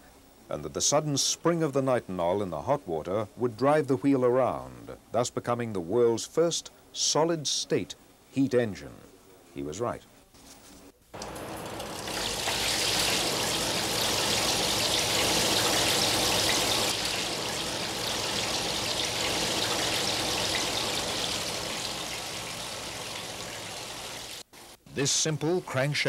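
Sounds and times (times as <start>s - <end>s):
water splashing and trickling: 11.2s - 24.4s.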